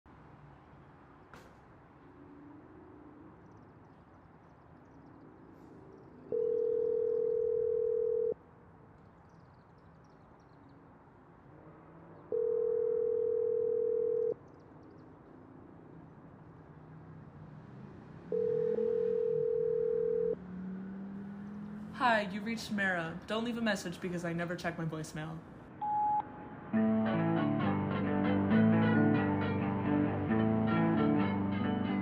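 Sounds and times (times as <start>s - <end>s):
telephone ringback tone: 6.3s - 8.4s, 12.3s - 14.4s, 18.3s - 20.4s, 25.8s - 26.2s.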